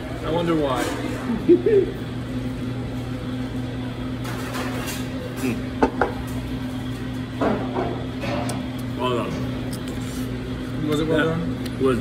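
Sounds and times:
steady low hum: 0.0s - 12.0s
dishes and utensils clinking: 4.2s - 6.2s.

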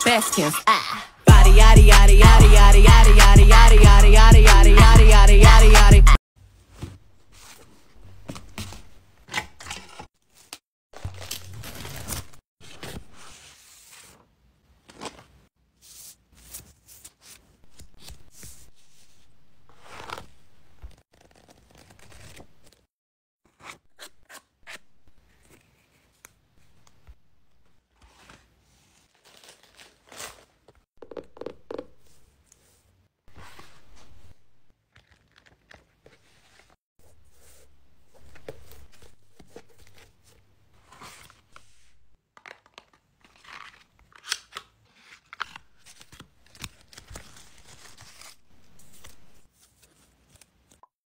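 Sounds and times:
paper rustling: 9.8s - 22.9s, 32.0s - 50.8s.

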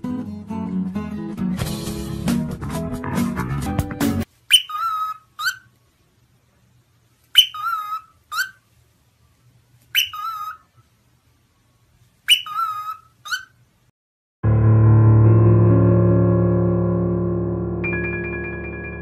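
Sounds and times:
cockatiel whistling: 4.5s - 5.7s, 7.3s - 8.6s, 9.9s - 10.7s, 12.3s - 13.6s.

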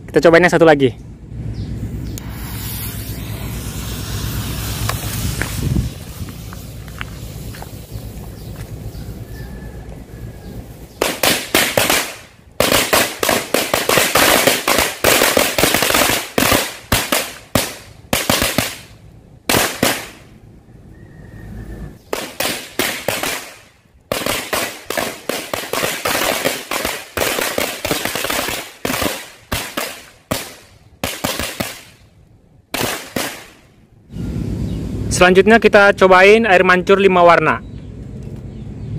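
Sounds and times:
firecrackers crackling bangs: 2.2s - 8.9s, 10.8s - 20.3s, 22.0s - 32.1s, 32.7s - 33.7s.

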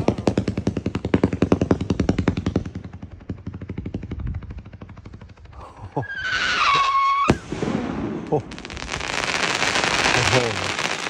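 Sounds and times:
firework crackling: 0.0s - 11.0s
firework whistle: 6.0s - 7.5s
firework bang: 6.6s - 11.0s.

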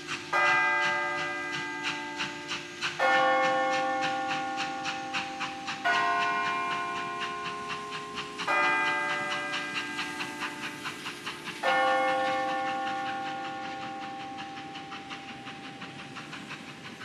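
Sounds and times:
bells ringing: 0.0s - 15.4s
quick even ticking: 0.1s - 17.0s.

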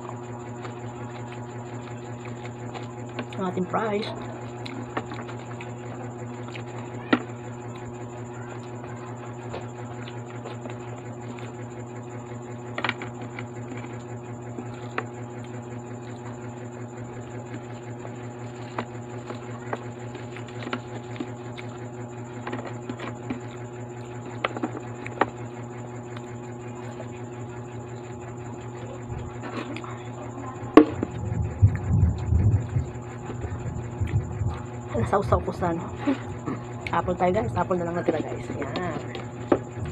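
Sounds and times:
person chewing fries: 0.0s - 16.4s, 17.2s - 25.4s, 26.1s - 31.3s
steady background hum: 0.0s - 39.9s.

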